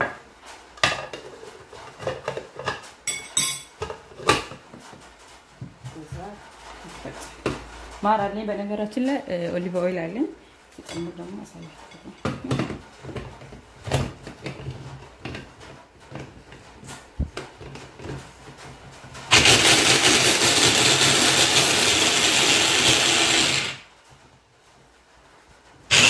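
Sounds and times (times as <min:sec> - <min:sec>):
electric chopper running: 0:19.3 - 0:23.8.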